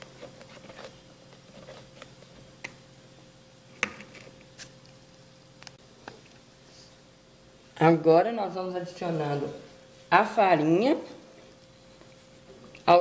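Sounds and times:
spatula scraping batter in bowl: 0.0s - 2.5s
faint steady hum: 0.0s - 13.0s.

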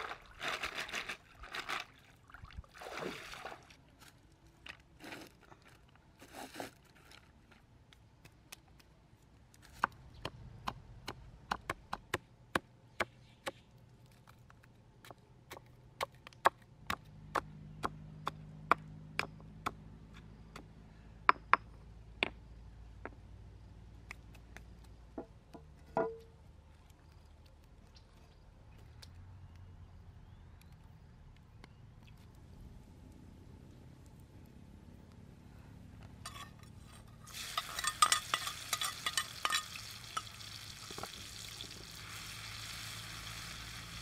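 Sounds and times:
basket splashing in water: 0.0s - 3.8s.

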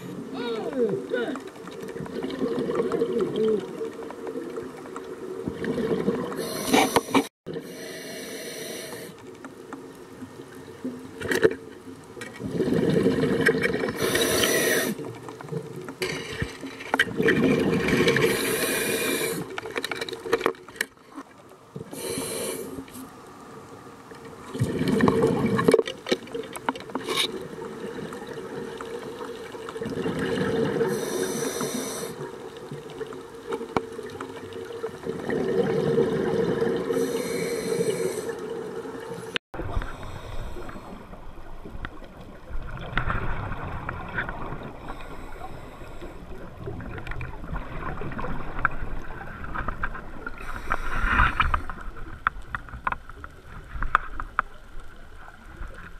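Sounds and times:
exhaled air bubbling: 1.7s - 7.6s, 12.4s - 15.7s, 17.1s - 19.5s, 24.5s - 25.7s, 27.4s - 32.2s, 34.0s - 52.2s
regulator hiss on inhale: 6.4s - 9.2s, 14.0s - 15.0s, 18.2s - 19.5s, 21.9s - 23.1s, 30.8s - 32.3s, 36.9s - 38.5s, 39.2s - 41.2s, 44.8s - 46.4s, 50.4s - 51.6s.

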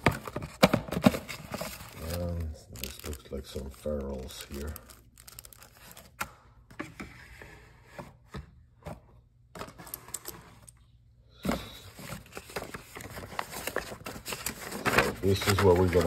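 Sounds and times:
plastic bag rustling: 1.4s - 6.0s, 11.6s - 16.0s.

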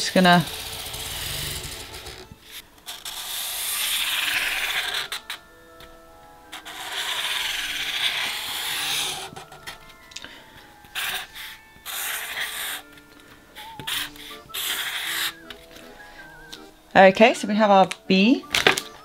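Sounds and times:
marker scratching on cardboard: 0.0s - 5.4s, 6.5s - 9.6s, 11.0s - 12.9s, 13.6s - 15.5s.

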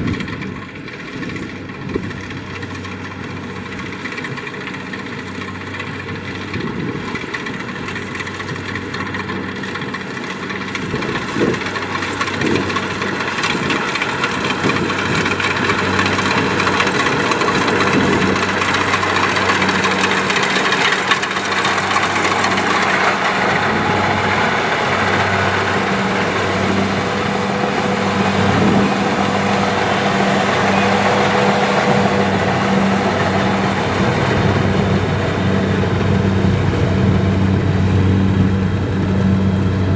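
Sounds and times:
diesel engine drone: 0.0s - 39.9s
mechanical threshing noise: 10.2s - 37.8s.

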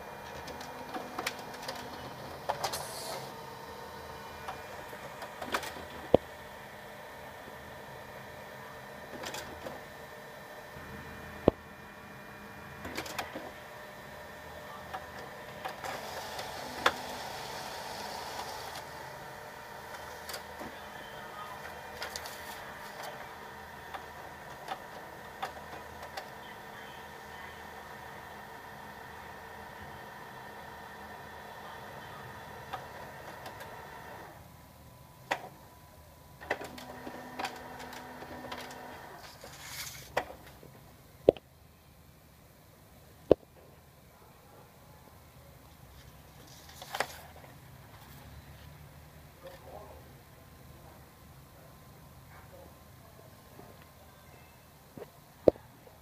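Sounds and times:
printer motors running: 0.0s - 40.8s
printer mechanism clicking: 0.2s - 2.9s, 23.8s - 26.4s, 36.4s - 39.0s
paper sheet ejecting hiss: 0.2s - 6.1s, 15.5s - 20.9s, 36.4s - 40.2s
printer clicks: 36.4s - 38.9s.

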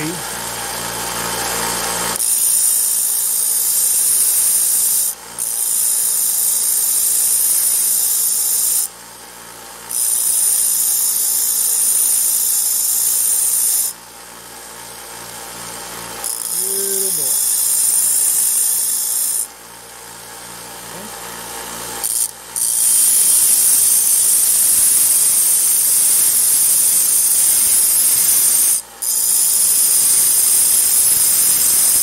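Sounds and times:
grinding wheel grinding metal: 16.1s - 19.5s, 22.0s - 32.0s.

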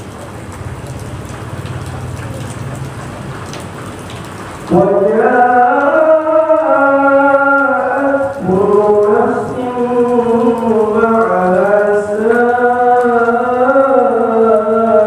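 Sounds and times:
man chanting recitation: 4.6s - 15.0s.

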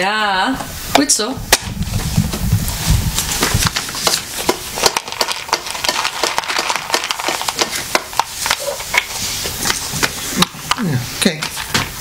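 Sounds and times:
plastic box clicks and crackles: 3.5s - 9.1s.

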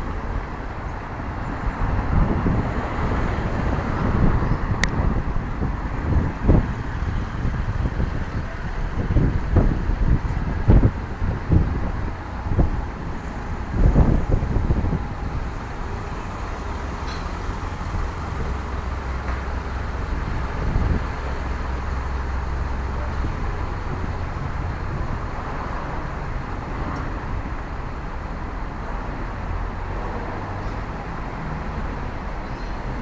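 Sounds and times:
vehicle engines rumbling: 0.0s - 33.0s
faint voices of passersby: 7.6s - 12.6s, 14.8s - 27.6s.

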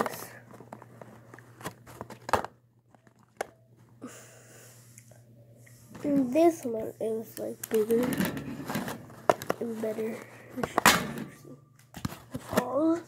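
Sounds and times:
plastic rustling: 7.6s - 13.0s.

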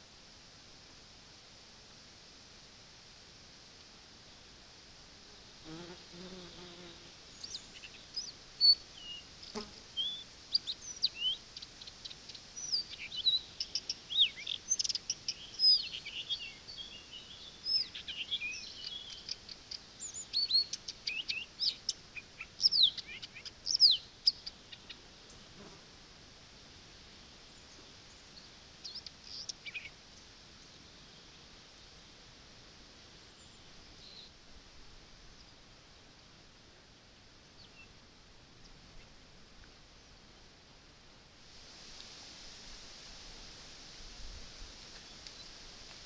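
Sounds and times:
small birds chirping: 5.6s - 25.5s, 27.4s - 31.4s.

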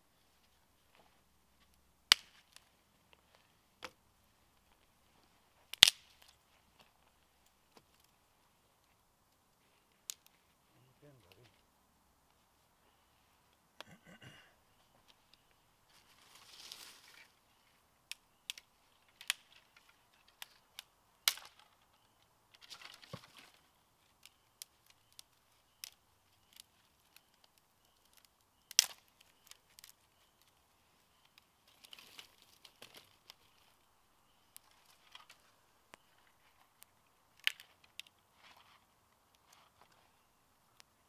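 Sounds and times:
dry sticks snapping and clacking: 1.6s - 4.0s, 5.7s - 8.2s, 9.8s - 10.5s, 15.0s - 16.0s, 18.0s - 40.0s
rustling in dry leaves: 14.8s - 17.8s, 22.5s - 36.8s.

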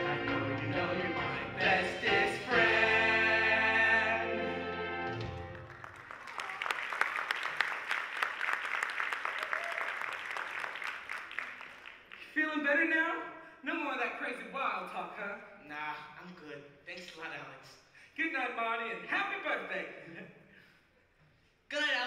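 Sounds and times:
backing track music: 0.0s - 5.8s
audience applauding: 5.2s - 12.3s.

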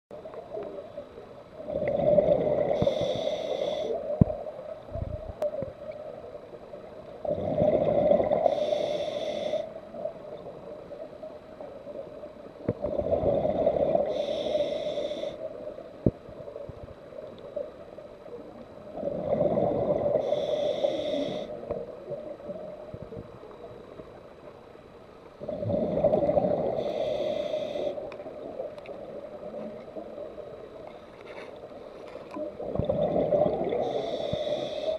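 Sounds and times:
scuba regulator breathing bubbles: 1.7s - 4.0s, 7.2s - 9.7s, 12.8s - 15.4s, 25.4s - 28.1s, 32.6s - 34.9s.

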